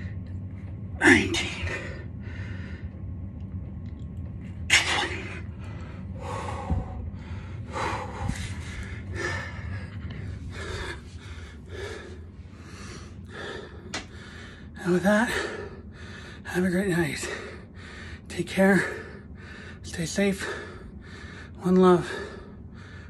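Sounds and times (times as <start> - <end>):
man breathing hard: 1.4 - 3.1, 4.7 - 23.0.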